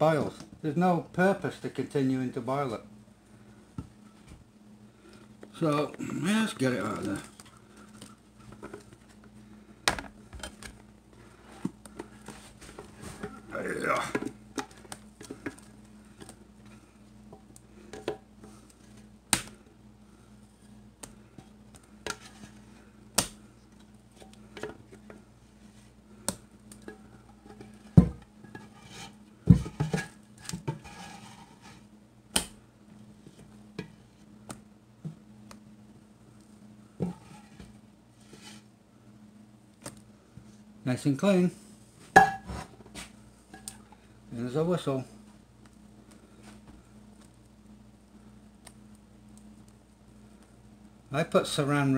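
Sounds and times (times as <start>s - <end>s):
steady low hum: 0.0s - 51.9s
scraper working cream in a pot: 27.4s - 31.9s.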